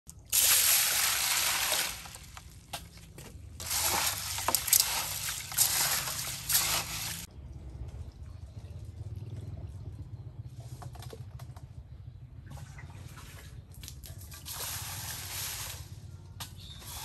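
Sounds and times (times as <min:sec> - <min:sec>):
water pouring into metal basin: 0:00.1 - 0:02.5, 0:03.6 - 0:07.3
hands sloshing beans in water: 0:00.1 - 0:07.3, 0:12.6 - 0:15.9.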